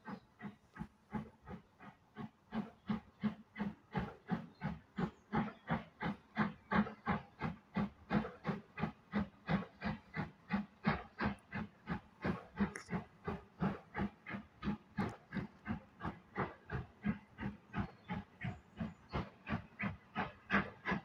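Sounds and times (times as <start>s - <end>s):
steam locomotive chuffing: 0.0s - 21.0s.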